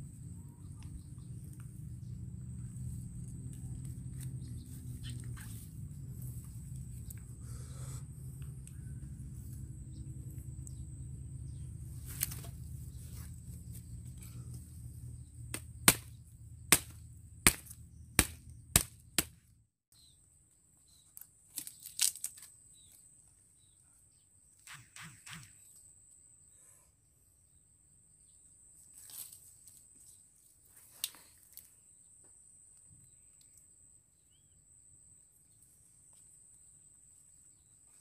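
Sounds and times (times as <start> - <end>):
low steady rumble: 0.0 - 19.6.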